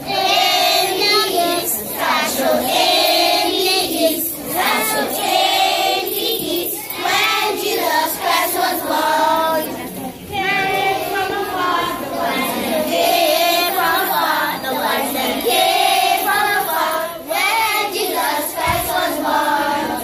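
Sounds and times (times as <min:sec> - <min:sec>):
children singing a carol: 0:00.0 - 0:20.0.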